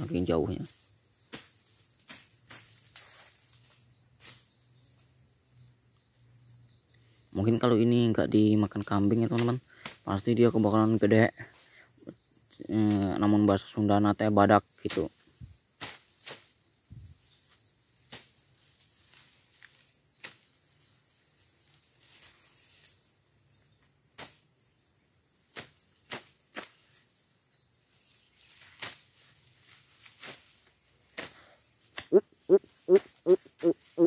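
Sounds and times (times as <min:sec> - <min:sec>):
insects chirring: 0:00.0 - 0:34.0
frog croaking: 0:32.1 - 0:34.0.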